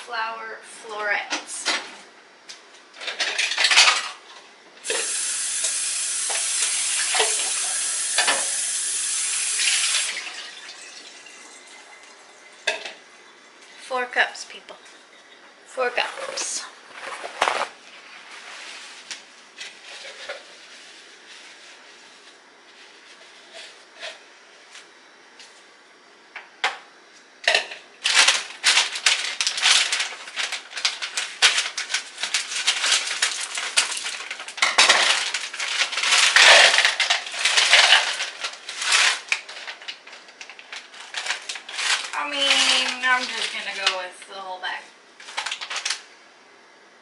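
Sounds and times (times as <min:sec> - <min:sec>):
plastic bag crinkling: 0:28.0 - 0:44.6, 0:45.2 - 0:46.1.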